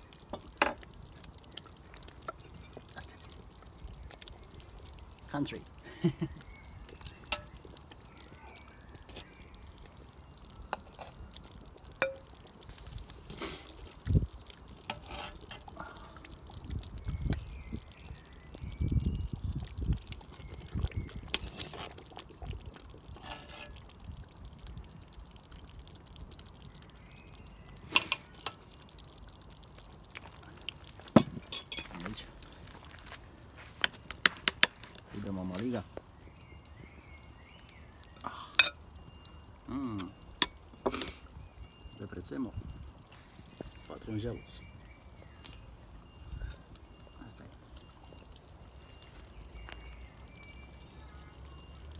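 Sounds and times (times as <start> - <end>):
stew plopping and pouring: 0.0 - 51.9
ladle clinking on metal pot: 12.0 - 12.3, 31.2 - 32.0.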